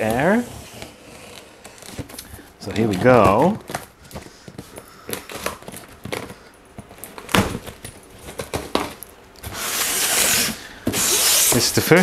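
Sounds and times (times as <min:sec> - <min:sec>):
packing tape being pulled: 0:00.0 - 0:02.4, 0:04.6 - 0:11.9
cardboard box crinkling and tapping: 0:01.6 - 0:09.0.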